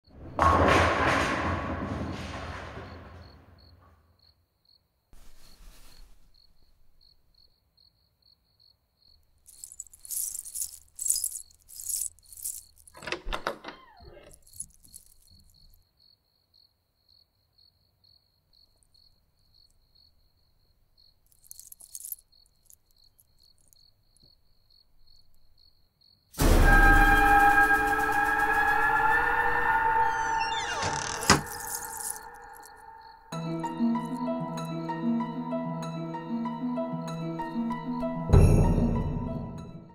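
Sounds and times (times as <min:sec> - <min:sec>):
metallic jingling: 0:09.4 - 0:13.2, 0:14.2 - 0:15.8, 0:21.3 - 0:23.8, 0:31.2 - 0:33.2.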